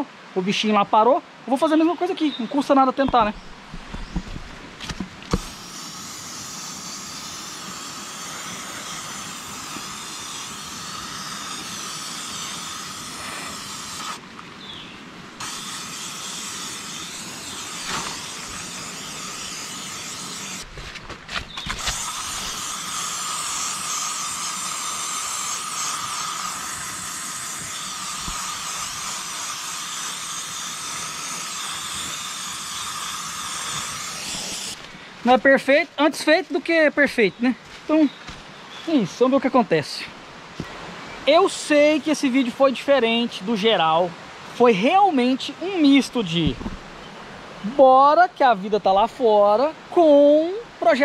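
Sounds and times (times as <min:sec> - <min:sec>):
spray hissing onto wood: 0:05.3 - 0:14.8, 0:15.4 - 0:20.8, 0:21.7 - 0:35.4.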